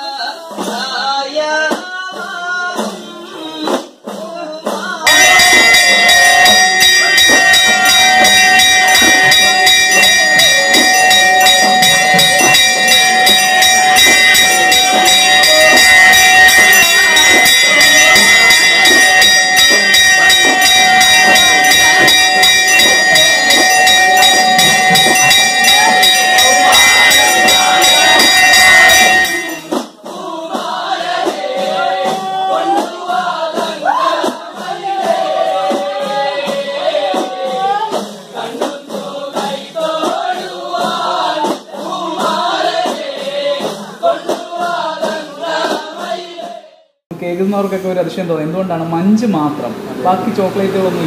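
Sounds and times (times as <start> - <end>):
music: 0.0 - 47.0
temple bells ringing rapidly: 5.1 - 29.8.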